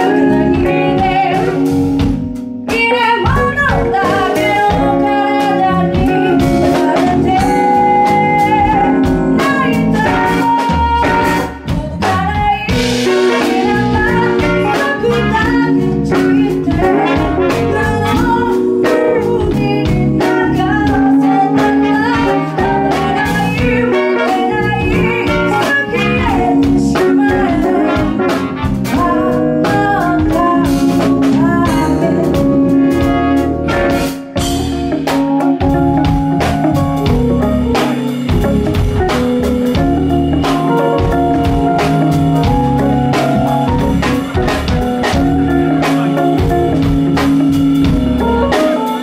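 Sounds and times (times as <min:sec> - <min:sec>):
trumpet and saxophone: 0:00.0 - 0:02.1, 0:02.9 - 0:11.7, 0:12.5 - 0:49.0
woman singing lead vocal: 0:00.0 - 0:02.1, 0:02.7 - 0:33.9
drum kit: 0:00.0 - 0:49.0
electric guitar: 0:00.0 - 0:49.0
keyboard: 0:00.0 - 0:49.0.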